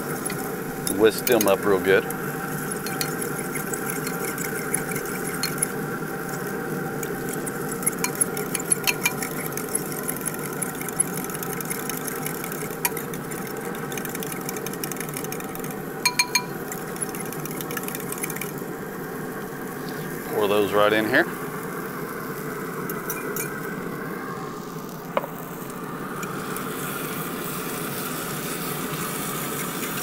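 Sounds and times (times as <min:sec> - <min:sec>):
fork whisking eggs in bowl: 0:00.0 - 0:18.6
grill fan humming: 0:00.0 - 0:30.0.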